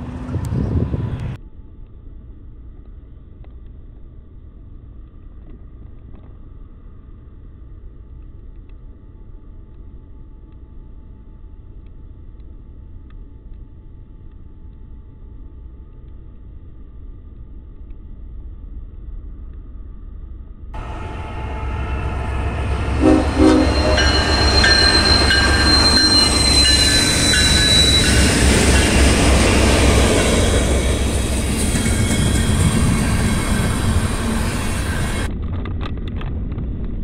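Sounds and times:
diesel locomotive rumbling: 0.0 - 1.4, 20.8 - 35.3.

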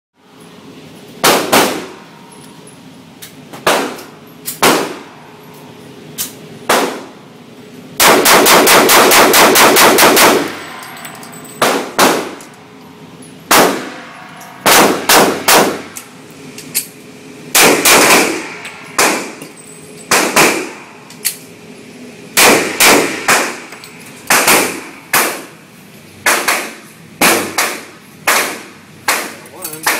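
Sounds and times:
handgun shots echoing indoors: 1.2 - 2.1, 3.6 - 5.3, 6.2 - 7.2, 8.0 - 12.6, 13.5 - 16.1, 17.5 - 19.5, 20.1 - 21.4, 22.4 - 25.5, 26.2 - 29.9.

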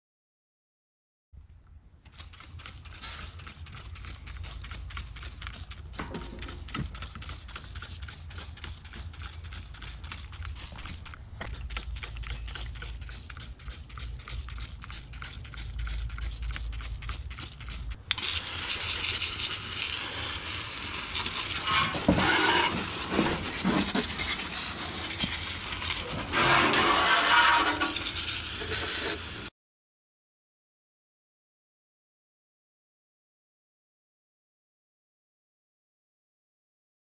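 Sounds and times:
hose spray nozzle hissing: 2.1 - 29.5.

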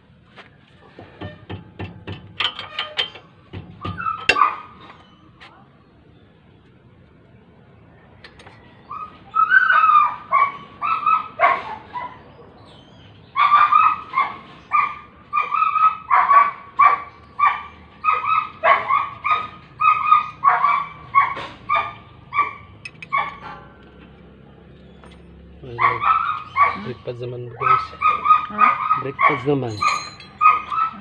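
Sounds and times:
dog barking: 4.3 - 4.8, 8.9 - 12.6, 13.3 - 23.8, 25.7 - 31.0.

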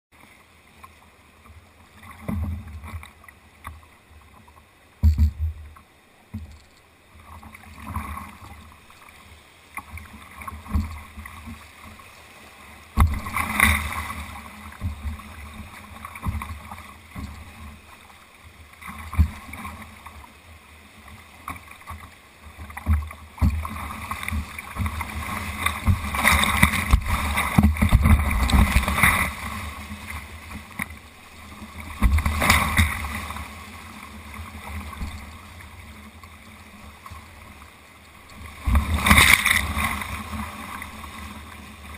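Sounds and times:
rushing water and splashing: 0.1 - 41.9
water thumping against boat: 5.0 - 5.7, 25.6 - 29.4.

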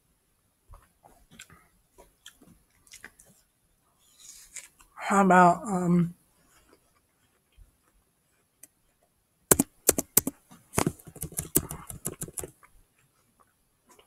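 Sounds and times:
computer keyboard typing: 9.5 - 12.5.

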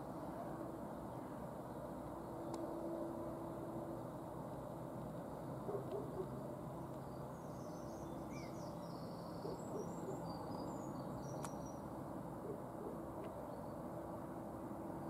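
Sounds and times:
low bird hoots: 5.7 - 6.4, 12.4 - 13.1
small sharp click: 11.3 - 11.6.

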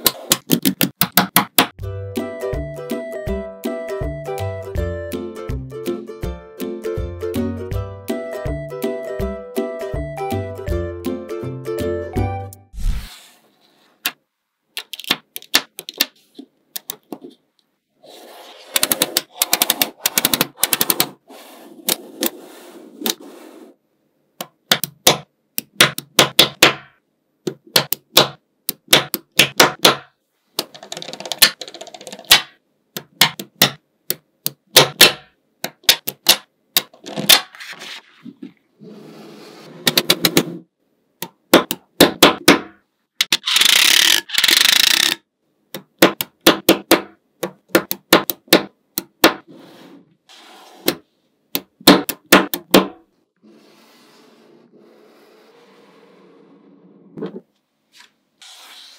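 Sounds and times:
magnet balls clicking together: 43.2 - 45.2.

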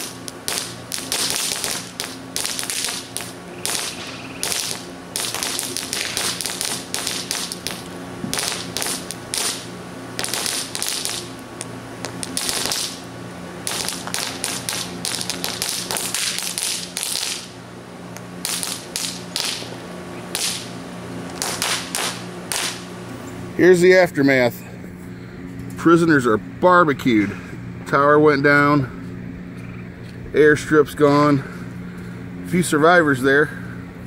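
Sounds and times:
firework crackling and popping: 0.0 - 13.0, 13.6 - 17.5, 18.4 - 19.7, 20.3 - 20.7, 21.3 - 22.8
burning cardboard: 0.0 - 17.6, 18.4 - 20.7, 21.3 - 22.9.

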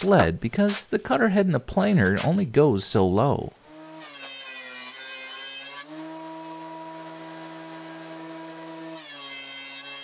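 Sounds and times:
planer cutting wood: 3.6 - 10.0
thickness planer motor hum: 3.7 - 10.0.

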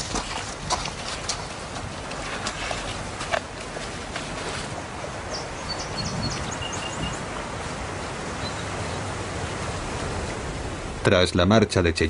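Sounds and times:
outdoor ambient hiss: 0.0 - 12.0.

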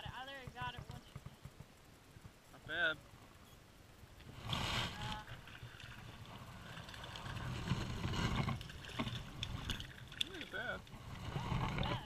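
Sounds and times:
wind on microphone: 10.9 - 12.0.

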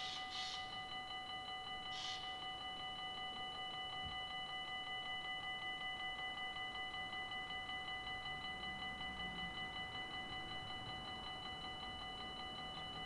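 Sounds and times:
level crossing bell ringing: 0.0 - 13.0.

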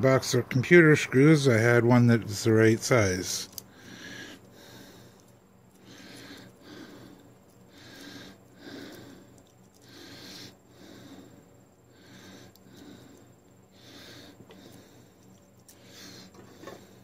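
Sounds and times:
close breathing: 3.4 - 17.0.

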